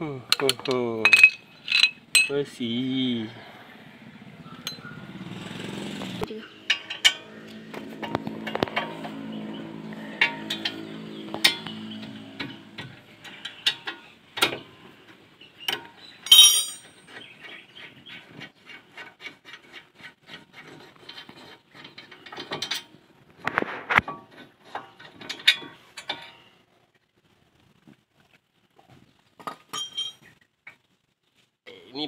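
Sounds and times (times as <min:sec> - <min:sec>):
metal clicks and clinks: 0:00.3 - 0:02.4, 0:04.6 - 0:04.8, 0:06.7 - 0:07.3, 0:15.7 - 0:17.0
sharp ringing metal clink: 0:04.6 - 0:04.9, 0:16.3 - 0:17.0.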